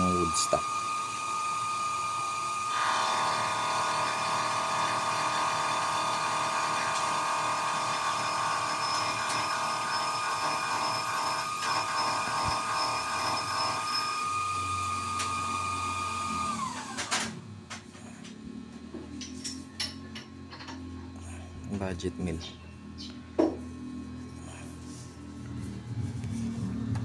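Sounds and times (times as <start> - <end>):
power tool motor whining: 0.0 - 18.1.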